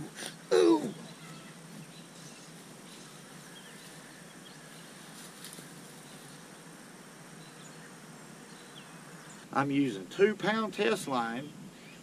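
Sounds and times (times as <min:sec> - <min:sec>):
steady soft hiss: 0:00.0 - 0:12.0
faint bird chirps: 0:00.8 - 0:05.1.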